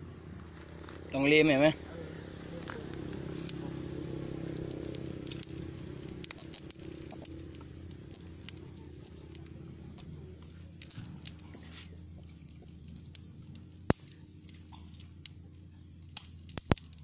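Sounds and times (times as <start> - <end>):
boiling water rumbling: 0.0 - 17.0
light crackles and clicks: 4.4 - 17.0.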